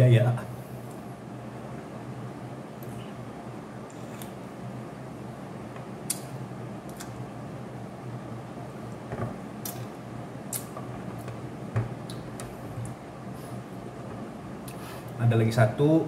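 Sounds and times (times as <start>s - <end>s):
low room hum: 0.0s - 16.0s
man chewing: 6.9s - 7.2s, 9.6s - 11.4s.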